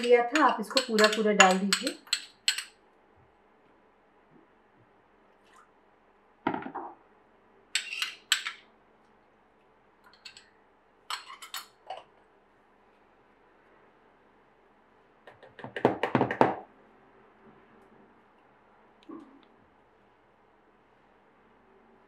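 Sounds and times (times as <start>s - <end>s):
spoon scraping a small bowl: 7.8s - 8.4s.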